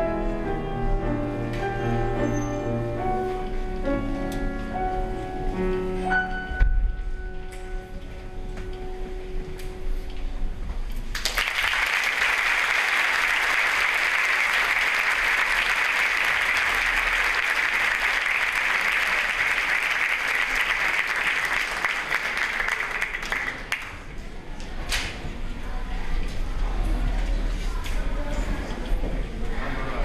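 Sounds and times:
audience applauding: 0:11.1 - 0:24.1.

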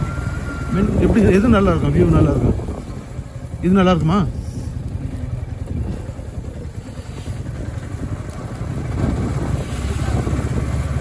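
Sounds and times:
motorcycle engine running: 0:00.0 - 0:11.0
road and wind rumble: 0:00.0 - 0:11.0.

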